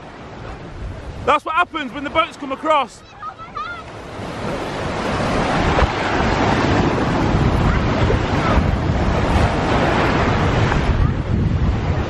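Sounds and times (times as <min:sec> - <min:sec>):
wind buffeting microphone: 0:00.0 - 0:01.3, 0:03.0 - 0:12.0
surf washing over shallows: 0:00.0 - 0:12.0.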